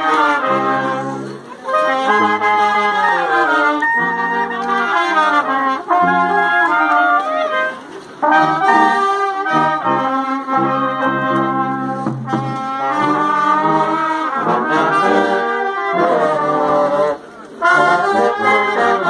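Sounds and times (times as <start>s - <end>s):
brass band playing: 0.0s - 19.0s.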